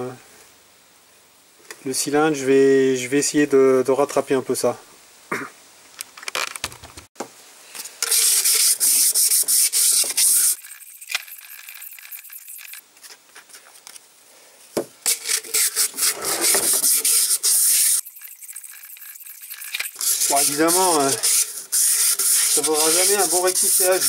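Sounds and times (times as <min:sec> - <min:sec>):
abrasive rubbing in metal cylinder: 0:15.1 - 0:24.0.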